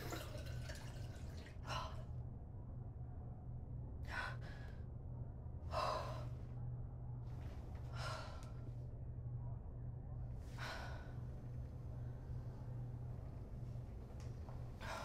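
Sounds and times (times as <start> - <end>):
low steady hum: 0.0 - 15.0
woman breathing heavily: 4.0 - 4.9, 5.6 - 6.6, 7.8 - 8.8, 10.4 - 11.4, 14.7 - 15.0.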